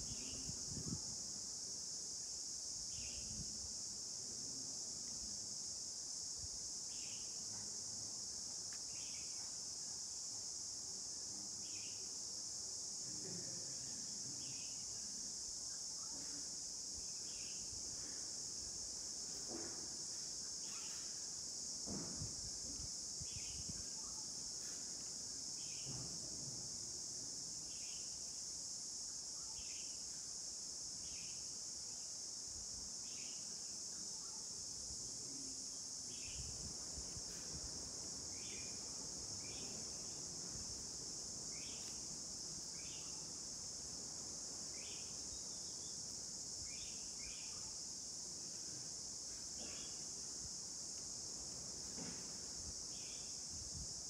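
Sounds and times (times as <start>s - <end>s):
high-pitched insect chorus: 0.0s - 54.0s
short insect chirps: 8.7s - 10.0s, 20.1s - 21.6s, 23.2s - 25.9s, 29.1s - 30.3s, 33.0s - 53.5s.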